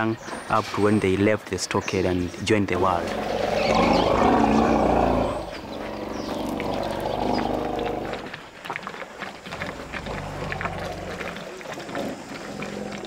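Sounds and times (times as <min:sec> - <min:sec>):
elephants rumbling roar: 0:02.9 - 0:08.5, 0:09.4 - 0:13.0.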